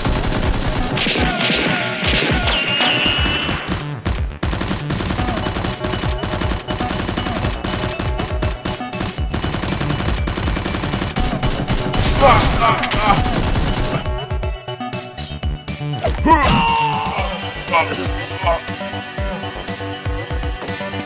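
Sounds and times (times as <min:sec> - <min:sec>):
rapid automatic gunfire effects: 0:00.0 - 0:14.2
background music: 0:00.0 - 0:21.0.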